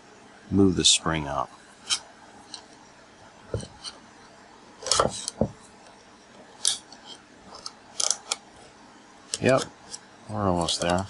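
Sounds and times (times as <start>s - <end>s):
screwdriver scraping and clicking on metal: 6.6s - 8.4s, 9.3s - 11.0s.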